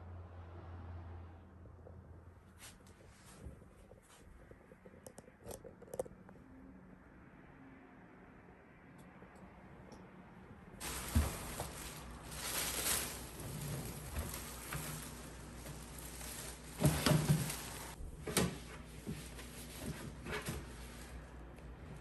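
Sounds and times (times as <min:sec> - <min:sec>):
plastic bag rustling: 0:10.8 - 0:21.5.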